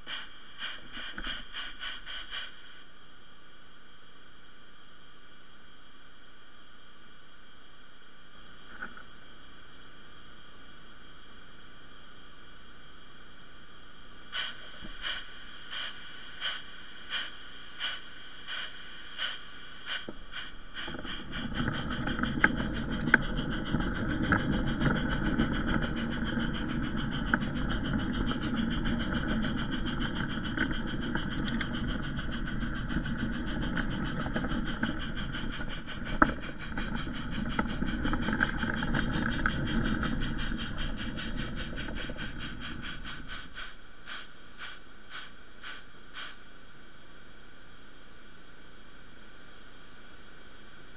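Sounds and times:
rolling rumble of train: 0.0s - 3.9s, 13.9s - 47.0s
rhythmic track clicks: 15.8s - 46.4s
model train motor whine: 19.9s - 46.4s.

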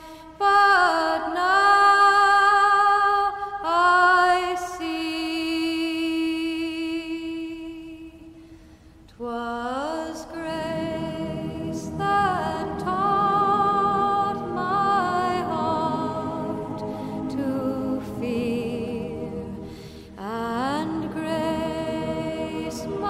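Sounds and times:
woman singing wordless held notes: 9.2s - 23.0s.

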